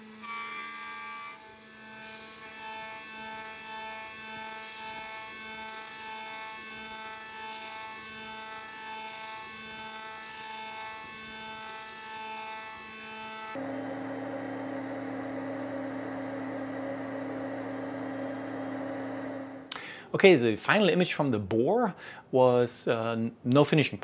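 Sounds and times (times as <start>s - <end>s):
low steady hum: 13.6s - 19.7s.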